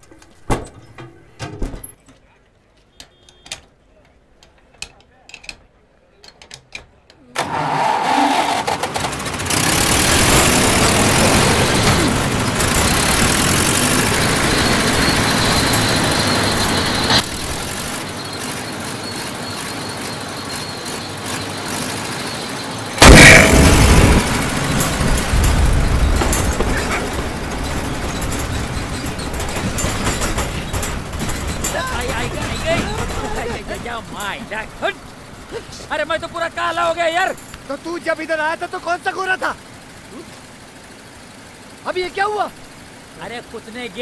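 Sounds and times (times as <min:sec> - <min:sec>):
loud engine blast: 0:07.8 - 0:17.3, 0:23.0 - 0:29.5
diesel engine running loudly: 0:08.1 - 0:34.3.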